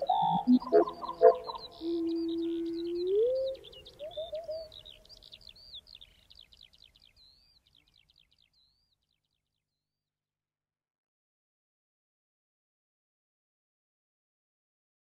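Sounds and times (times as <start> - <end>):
birdsong chirps and trills: 0.0 - 9.4.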